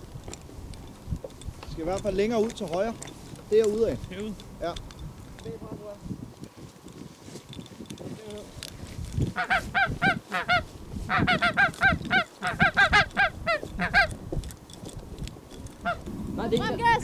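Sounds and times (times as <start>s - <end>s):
geese honking: 9.3s - 14.2s, 15.8s - 16.1s.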